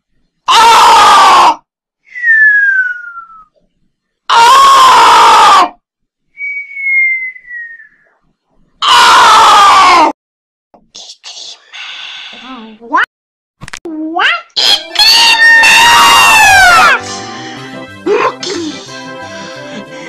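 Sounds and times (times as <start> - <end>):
person screaming distorted: 4.3 - 5.8, 8.8 - 10.2, 14.6 - 17.0.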